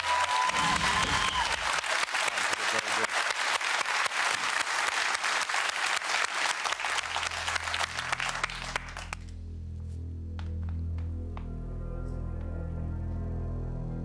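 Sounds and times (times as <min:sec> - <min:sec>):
audience applause: 0:00.0 - 0:09.3
low sustained music: 0:07.1 - 0:14.0.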